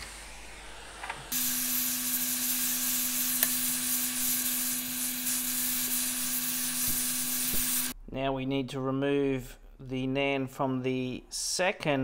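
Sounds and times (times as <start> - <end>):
hot air gun blowing: 0.0 - 7.9.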